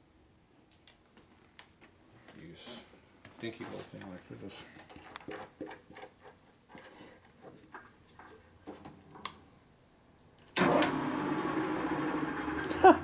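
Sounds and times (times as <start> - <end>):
drill press motor humming: 10.6 - 12.8.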